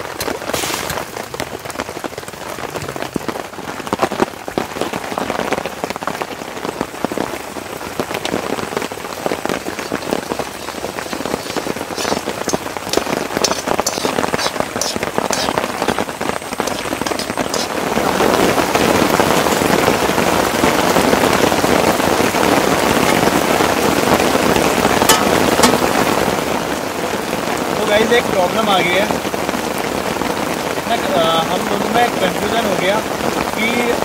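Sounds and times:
rain on tent: 0.0s - 34.0s
metal spoon scraping iron pan: 9.9s - 16.0s, 16.6s - 17.8s, 25.1s - 25.9s.

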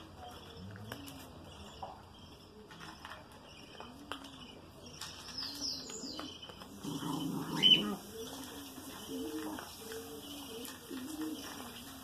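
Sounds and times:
pigeon cooing: 6.1s - 12.0s.

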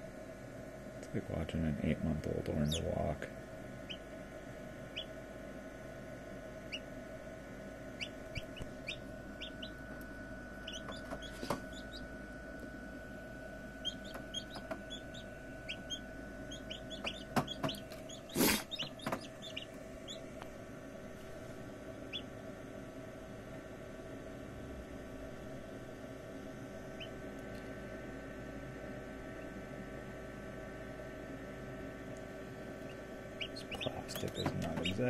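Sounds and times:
steady hum: 0.0s - 35.0s
chicks peeping: 4.9s - 5.1s, 6.6s - 6.9s, 8.0s - 9.8s, 10.6s - 12.1s, 13.8s - 20.3s, 22.1s - 22.3s, 32.8s - 35.0s.

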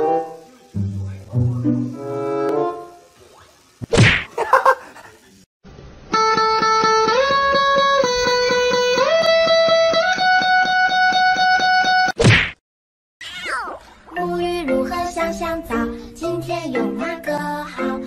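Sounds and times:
guitar sustained notes: 6.1s - 11.9s.

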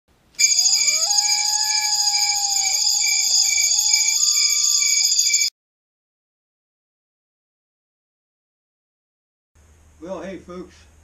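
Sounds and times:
long sliding whistles: 0.4s - 5.5s
shrill pulsing high-pitched tone: 0.4s - 5.5s.

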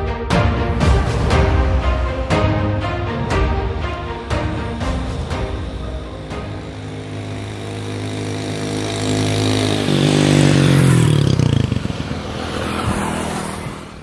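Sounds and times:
motorcycle engine revving: 4.2s - 14.0s
wind and road hiss: 4.4s - 14.0s.

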